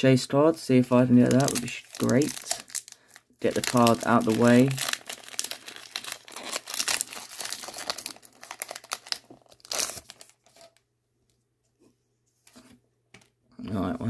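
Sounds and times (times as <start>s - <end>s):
foil wrapper crinkling and tearing: 1.2s - 10.8s.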